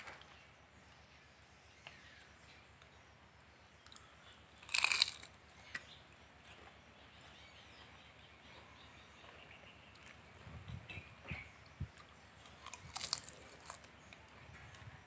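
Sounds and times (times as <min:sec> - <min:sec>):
crunch of fried leaves: 0:03.8 - 0:06.7, 0:12.0 - 0:14.8.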